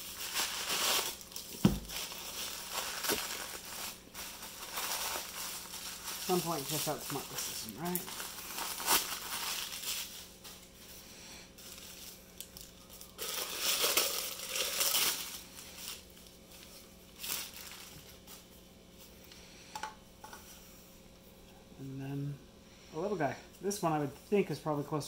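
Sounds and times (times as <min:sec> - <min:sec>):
paper and plastic wrap crinkling: 0:00.0 - 0:18.6.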